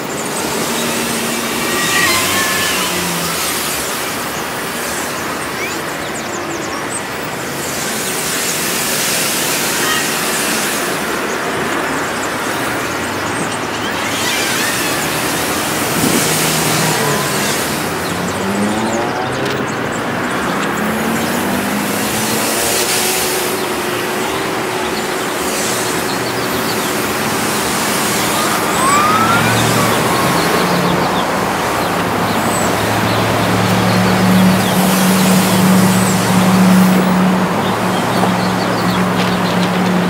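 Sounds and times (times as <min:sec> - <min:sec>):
passing cars: 0:00.0 - 0:40.0
vehicle accelerating through gears: 0:12.9 - 0:40.0
low engine hum: 0:25.8 - 0:40.0.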